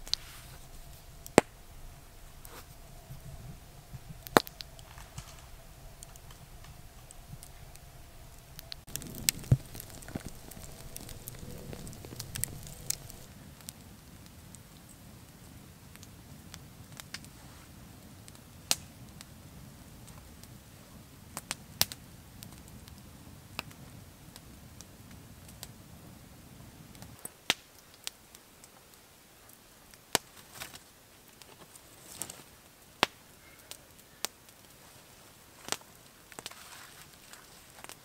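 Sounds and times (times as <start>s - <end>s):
sharp fire pops: 0.0s - 1.7s, 3.9s - 14.4s
low rumble: 0.0s - 13.3s
campfire crackling: 0.0s - 38.0s.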